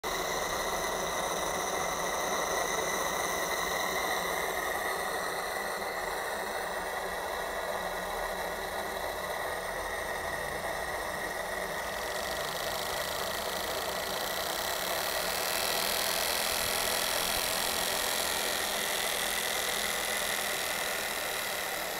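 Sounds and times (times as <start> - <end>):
model steam engine chattering: 10.8 - 21.9.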